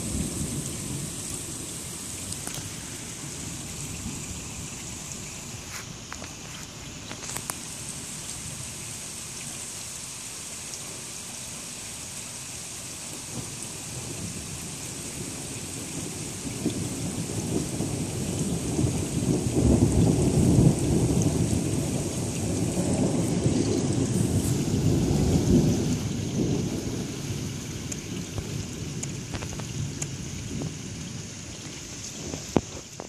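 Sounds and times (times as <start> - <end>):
steady rain: 0.0 - 33.0
rolling thunder: 13.3 - 32.9.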